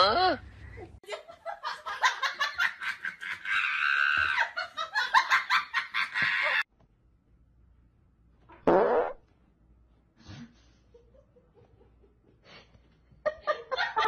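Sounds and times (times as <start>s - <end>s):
person laughing hard: 1.1s - 6.6s.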